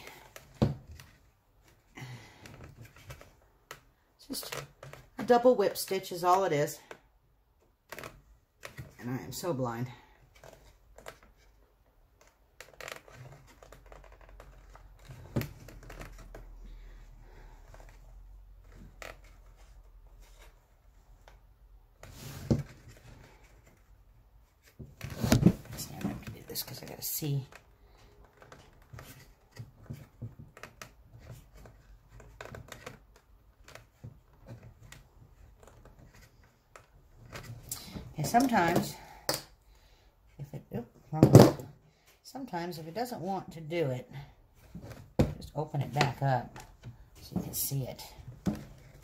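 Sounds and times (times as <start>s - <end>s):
leather lace rustling and clicking: 10.4s - 16.6s.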